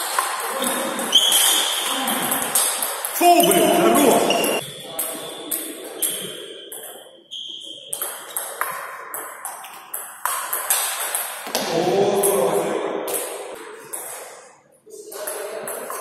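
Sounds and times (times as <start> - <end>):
person speaking: 3.2 - 4.6.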